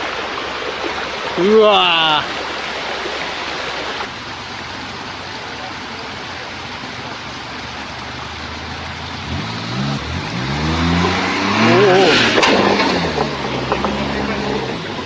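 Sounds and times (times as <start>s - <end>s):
rushing creek water: 0.0s - 15.0s
car engine revving: 8.0s - 15.0s.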